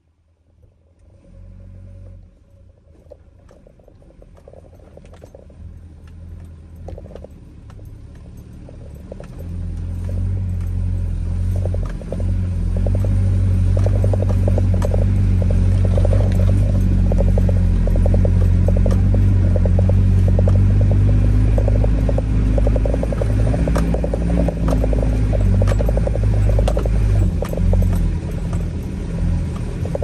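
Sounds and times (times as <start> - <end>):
vehicle engine running: 0.3 - 30.0
knocks and rattles on bumpy ground: 2.7 - 30.0.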